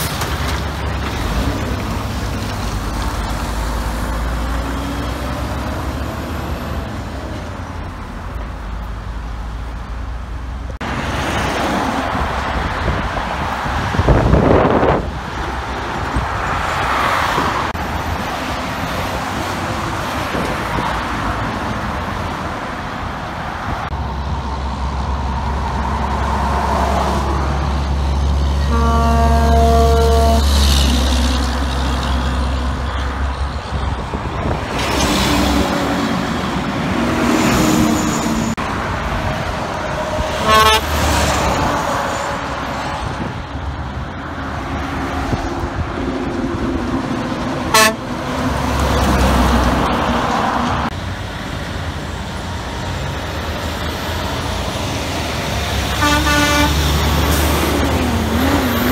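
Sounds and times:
heavy trucks passing: 0.0s - 58.9s
short sharp horn toots: 28.6s - 30.7s, 40.4s - 40.9s, 47.7s - 48.0s, 56.0s - 56.9s
truck air horn blast: 28.6s - 31.3s, 40.3s - 41.2s, 47.7s - 48.1s, 55.9s - 57.2s.

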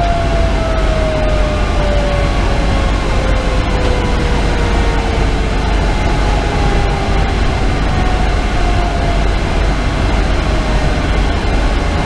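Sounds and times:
diesel engine rumble: 0.0s - 12.0s
road noise: 0.0s - 12.0s.

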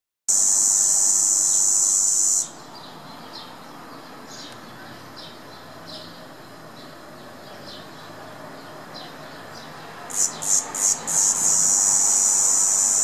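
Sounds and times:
cicada buzzing: 0.3s - 2.8s, 10.1s - 13.0s.

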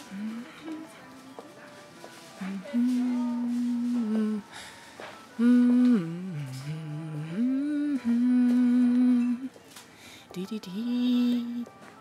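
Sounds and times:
person humming: 0.0s - 0.9s, 2.4s - 4.5s, 5.3s - 9.5s, 10.3s - 11.7s.

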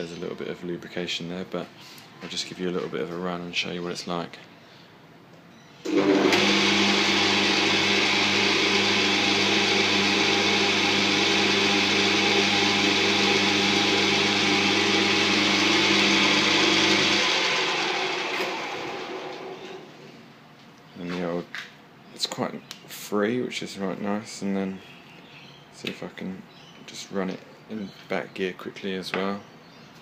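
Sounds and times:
lathe running: 5.9s - 19.8s.

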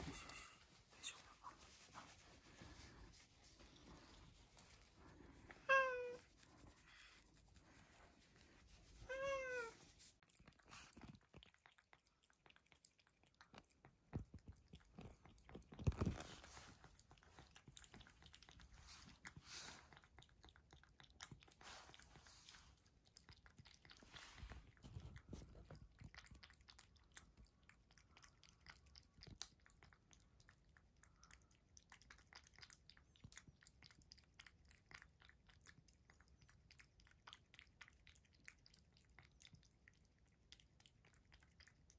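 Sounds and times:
cat chewing and licking: 0.0s - 41.9s
cat meowing: 5.6s - 6.3s, 9.1s - 9.8s.

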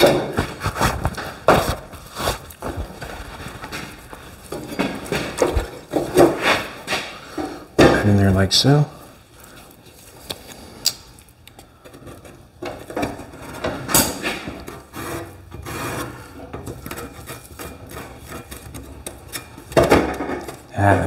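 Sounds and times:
metal scraping on metal: 13.2s - 20.7s.

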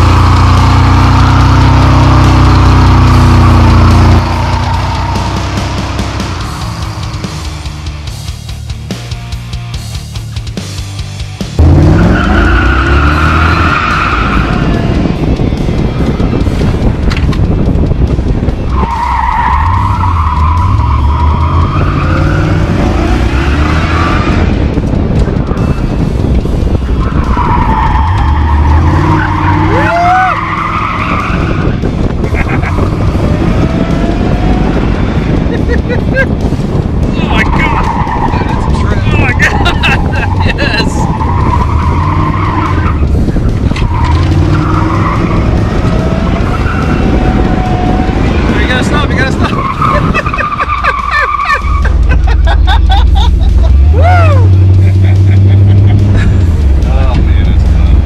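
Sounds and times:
truck engine running hard: 0.0s - 58.0s
tyres squealing: 43.8s - 52.2s.

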